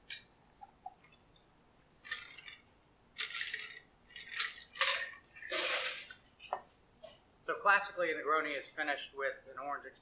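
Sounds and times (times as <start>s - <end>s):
ice clinking: 2.0s - 6.1s.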